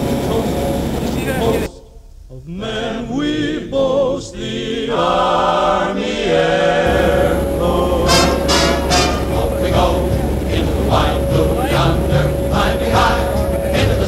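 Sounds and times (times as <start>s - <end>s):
choir singing: 0.0s - 14.0s
low rumble: 6.9s - 14.0s.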